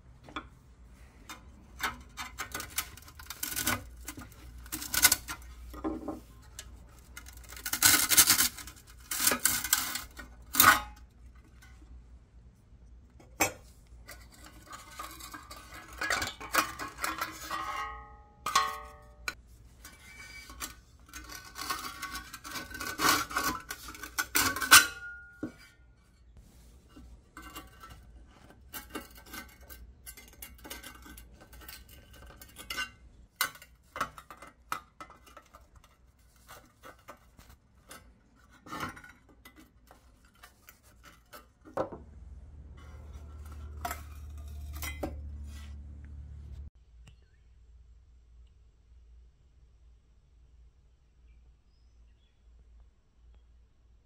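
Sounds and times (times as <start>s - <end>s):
metal toy parts clanking: 1.3s - 11.8s, 14.0s - 25.6s, 42.8s - 45.3s
metal ringing: 24.6s - 25.8s.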